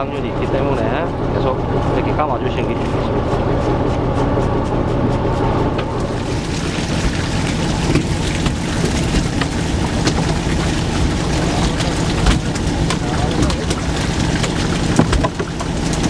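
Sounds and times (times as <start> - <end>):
boat engine humming: 0.0 - 16.0
water splashes: 5.8 - 16.0.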